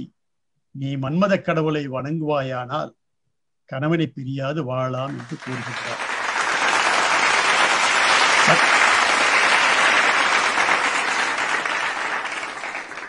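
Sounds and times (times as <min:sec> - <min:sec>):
applause: 0:05.0 - 0:13.0.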